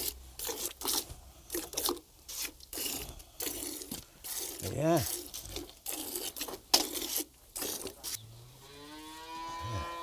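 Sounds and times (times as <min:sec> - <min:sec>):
cow mooing: 0:08.6 - 0:10.0.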